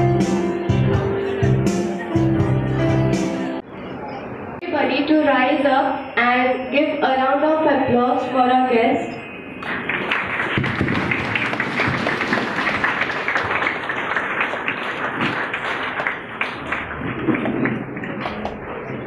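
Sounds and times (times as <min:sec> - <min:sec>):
audience applauding: 0:09.6 - 0:18.6.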